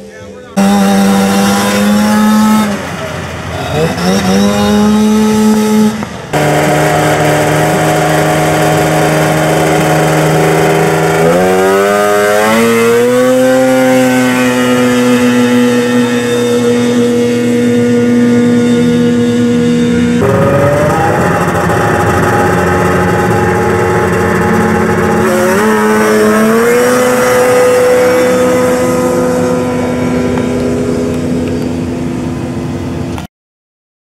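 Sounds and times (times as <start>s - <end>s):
snowmobile engines at full throttle: 0.0s - 33.3s.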